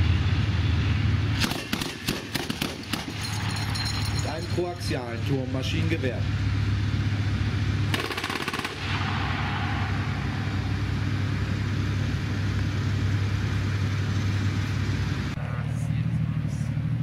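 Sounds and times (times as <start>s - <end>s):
heavy diesel engine running: 0.0s - 17.0s
machine-gun burst: 1.4s - 3.2s, 7.9s - 9.4s.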